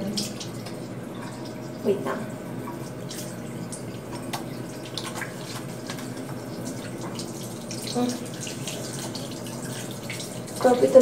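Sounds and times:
tap water running into sink: 0.0s - 11.0s
hands washing splashes: 2.5s - 11.0s.

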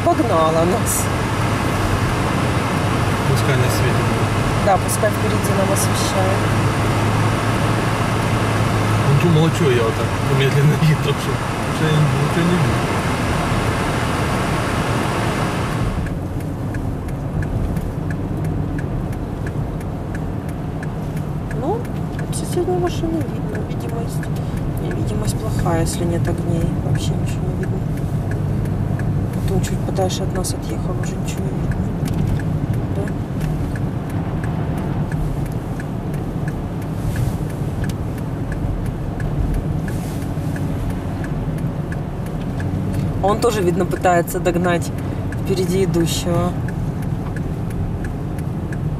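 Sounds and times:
engine and road rumble: 0.0s - 48.9s
hazard light flasher ticking: 16.0s - 48.9s.

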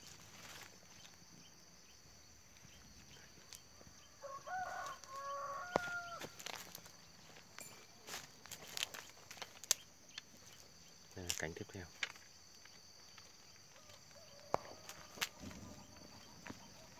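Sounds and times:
footsteps on dry bamboo: 0.0s - 1.4s, 2.4s - 16.9s
rooster crowing: 4.1s - 6.7s, 13.7s - 16.1s.

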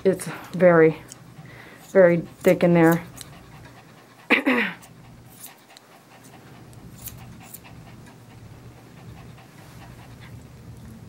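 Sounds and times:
grooming shears snipping: 0.1s - 3.8s, 4.8s - 8.2s
dog panting: 0.1s - 11.0s.

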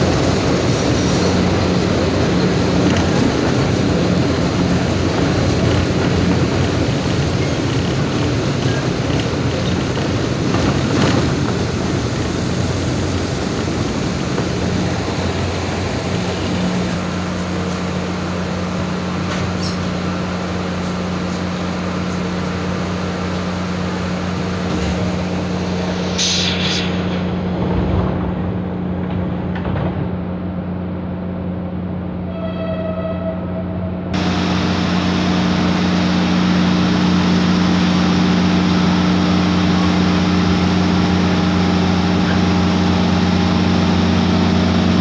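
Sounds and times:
idling train hum: 0.0s - 45.0s
train rolling in: 0.0s - 45.0s
air hiss of doors closing: 25.9s - 27.8s.

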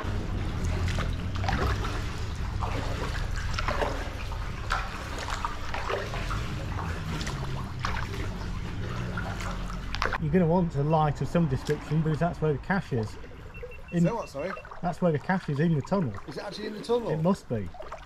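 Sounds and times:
steady low rumble: 0.0s - 14.0s
paddles splashing in water: 0.0s - 18.0s.

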